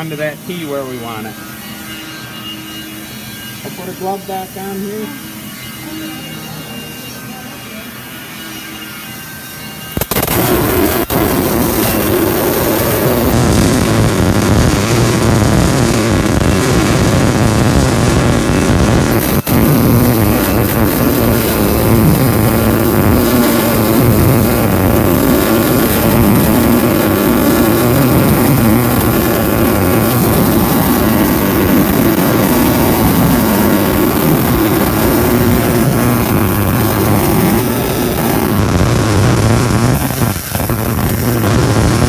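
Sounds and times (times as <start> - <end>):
welding arc crackling and hissing: 9.9 - 42.0.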